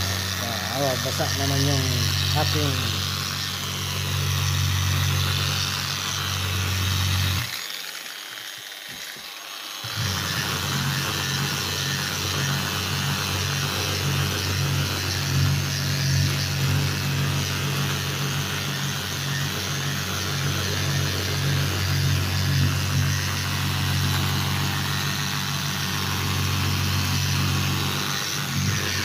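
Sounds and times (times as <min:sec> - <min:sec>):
rotary polisher running: 0:00.0 - 0:29.0.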